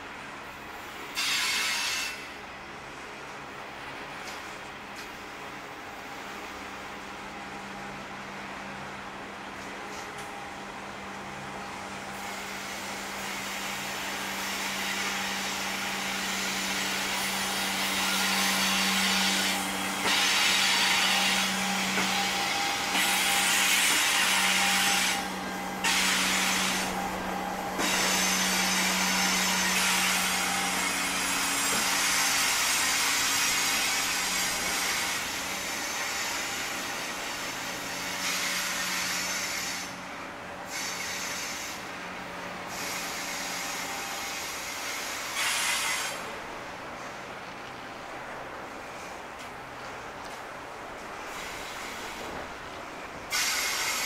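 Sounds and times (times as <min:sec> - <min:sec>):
wagon wheels hissing and rumbling: 0:12.1 - 0:40.0.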